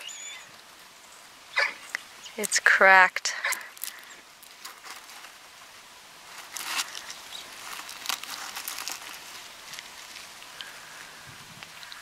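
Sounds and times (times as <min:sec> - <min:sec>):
eggshell crackling and crunching: 0:03.4 - 0:05.5, 0:06.2 - 0:12.0.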